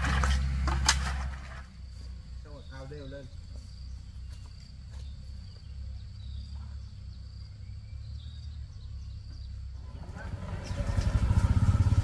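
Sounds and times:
insects droning: 0:00.0 - 0:12.0
faint chirps: 0:01.7 - 0:11.1.

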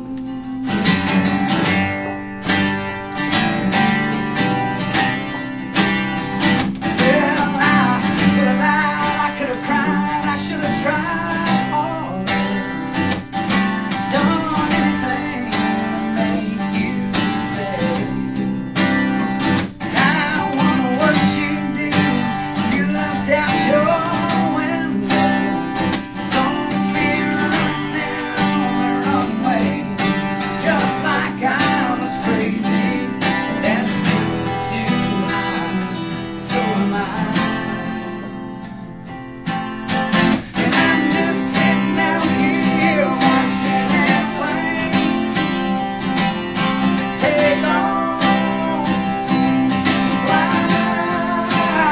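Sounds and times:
person singing: 0:00.0 - 0:00.6, 0:06.9 - 0:12.8, 0:13.9 - 0:18.5, 0:19.8 - 0:39.0, 0:40.2 - 0:46.0, 0:46.8 - 0:51.9
country band playing live: 0:00.0 - 0:51.9
strummed acoustic guitar: 0:00.0 - 0:51.9.

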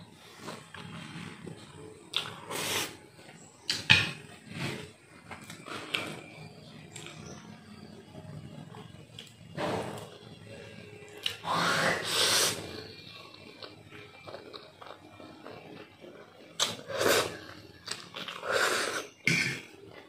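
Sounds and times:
person slurping noodles: 0:02.2 - 0:03.0, 0:11.4 - 0:12.7, 0:16.6 - 0:17.4, 0:18.3 - 0:19.6
chewing: 0:13.3 - 0:15.8.

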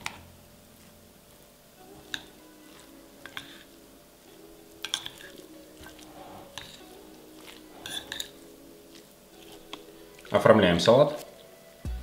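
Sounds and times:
soft background music: 0:00.0 - 0:12.0
wet squishing of salad: 0:02.0 - 0:03.7, 0:04.5 - 0:11.5.

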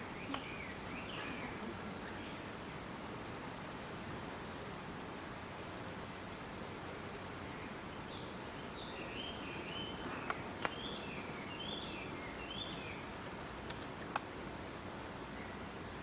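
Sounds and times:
bird chirping: 0:00.0 - 0:02.5, 0:06.6 - 0:13.2
outdoor background hiss: 0:00.0 - 0:16.0.

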